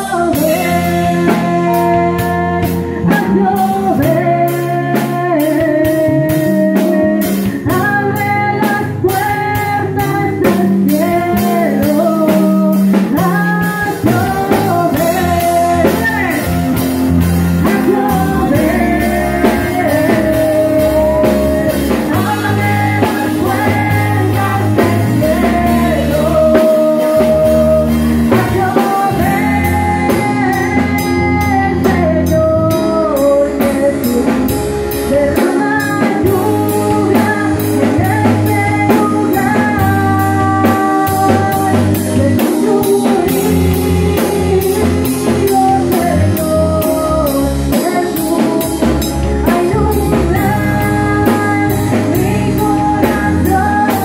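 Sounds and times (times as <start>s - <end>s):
drum kit: 0.0s - 54.0s
electric guitar: 0.0s - 54.0s
heavy bass: 0.0s - 54.0s
woman singing: 0.0s - 54.0s.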